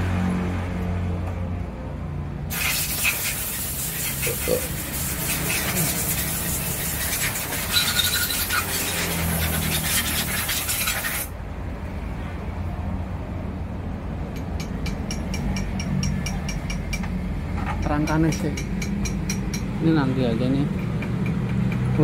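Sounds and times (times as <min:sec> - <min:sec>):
high-pressure spray hissing: 0:02.5 - 0:11.3.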